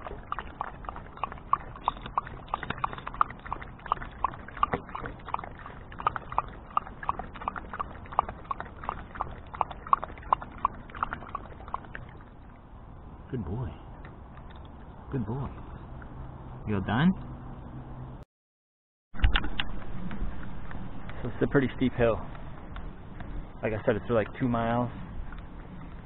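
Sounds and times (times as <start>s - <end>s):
dog lapping water: 0.0s - 12.7s.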